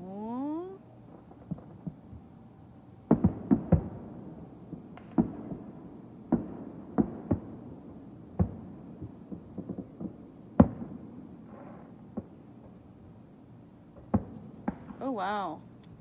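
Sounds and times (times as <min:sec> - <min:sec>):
crackling firework pops: 0:01.1 - 0:02.3, 0:03.0 - 0:04.1, 0:04.7 - 0:12.8, 0:13.9 - 0:15.0
fireworks booming: 0:01.1 - 0:02.4, 0:03.0 - 0:12.9, 0:13.9 - 0:15.6.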